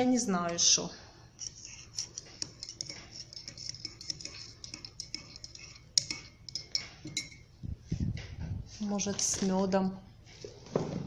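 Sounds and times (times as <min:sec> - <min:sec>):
teaspoon clinking in a mug: 0:01.4 - 0:07.5.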